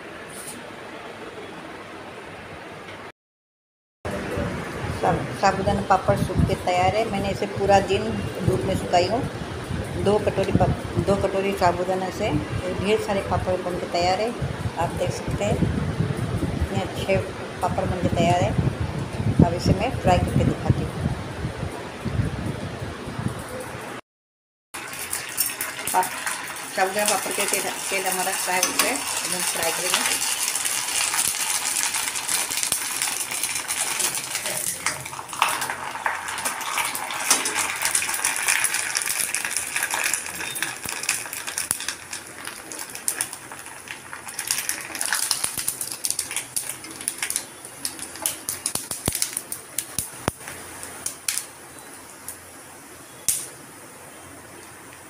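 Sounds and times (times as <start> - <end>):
papad sizzling in hot oil: 24.8 - 52.5.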